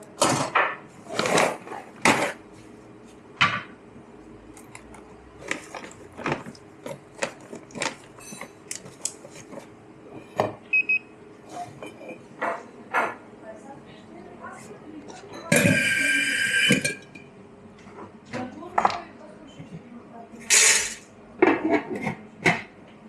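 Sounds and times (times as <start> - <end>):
cups and saucers clinking: 11.7 - 13.2, 15.1 - 17.3
brief ringing tone: 15.6 - 16.8.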